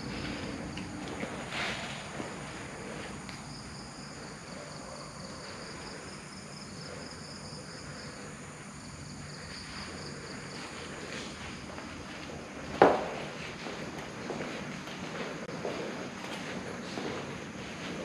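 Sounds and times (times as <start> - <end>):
insects chirring: 0.0 - 18.0.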